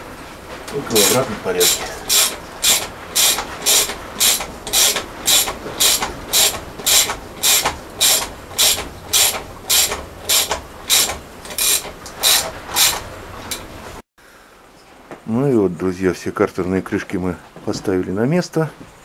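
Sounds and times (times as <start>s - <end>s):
ratchet wrench clicking: 1.6s - 13.6s.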